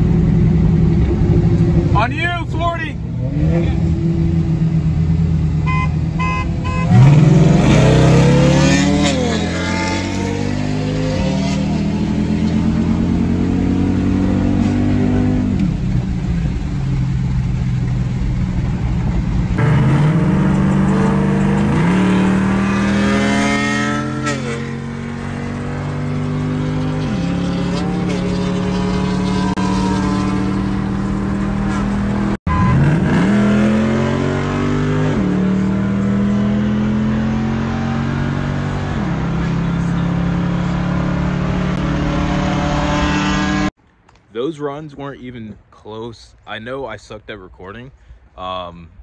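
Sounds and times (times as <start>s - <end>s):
car engine accelerating through gears: 6.8s - 18.0s, 19.5s - 43.7s.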